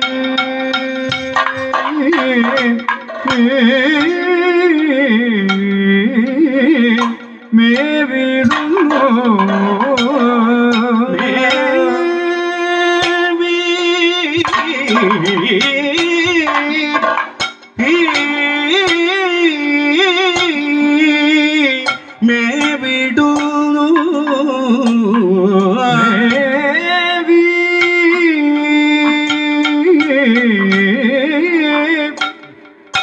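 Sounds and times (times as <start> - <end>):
man singing ornamented notes: 0.0 - 32.8
drum strokes: 0.0 - 33.0
hand cymbals: 0.0 - 33.0
gong: 11.1 - 12.6.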